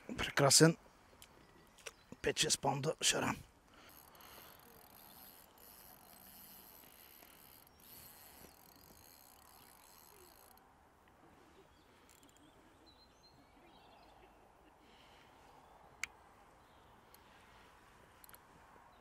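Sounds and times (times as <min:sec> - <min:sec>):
faint bird chirps: 0:11.4 - 0:16.0.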